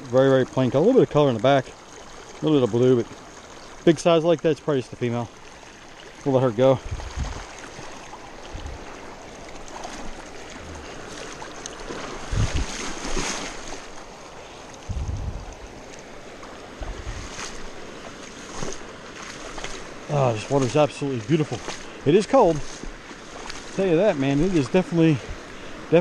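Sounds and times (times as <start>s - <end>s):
creek running over rocks: 0.0s - 26.0s
legs wading through water: 0.0s - 26.0s
dull low thumps: 6.8s - 7.5s, 12.2s - 12.8s, 14.9s - 15.6s, 16.8s - 17.3s.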